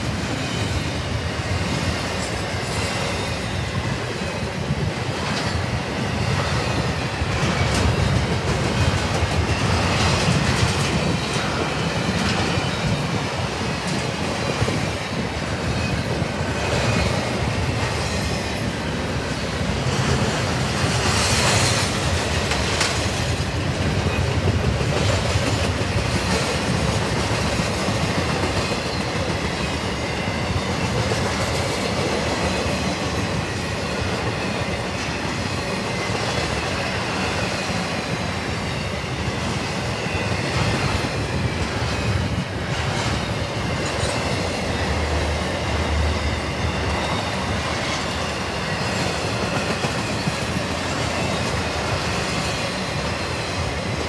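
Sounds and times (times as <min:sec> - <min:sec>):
train wheels clattering over rails: 0:00.0 - 0:54.0.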